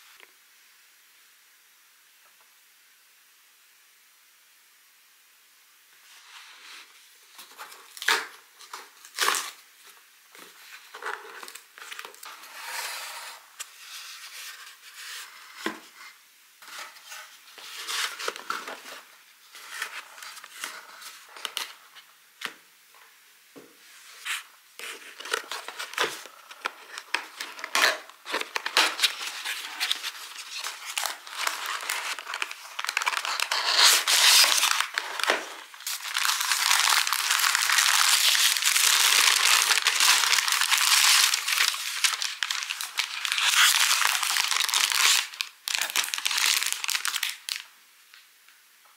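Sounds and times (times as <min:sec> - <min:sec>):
tissue paper crinkling: 0:24.2 - 0:47.7.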